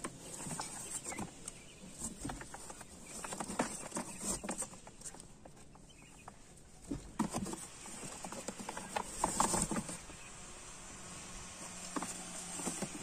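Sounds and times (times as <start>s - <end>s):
cardboard box rustling: 0.0s - 5.4s, 6.8s - 10.1s, 11.5s - 13.0s
quails scratching in cardboard box: 0.0s - 13.0s.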